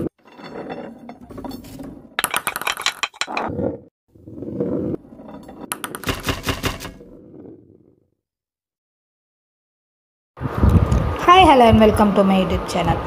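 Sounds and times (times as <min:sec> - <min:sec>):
ball rolling through marble run: 0:00.0 - 0:08.0
sharp clicks and clinks: 0:01.3 - 0:03.5.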